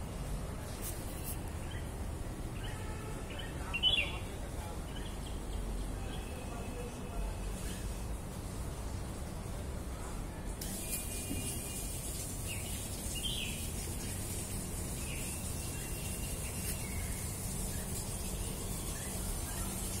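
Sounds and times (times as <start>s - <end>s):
high bird chirps: 2.6s - 4.3s
steady high hiss: 7.0s - 20.0s.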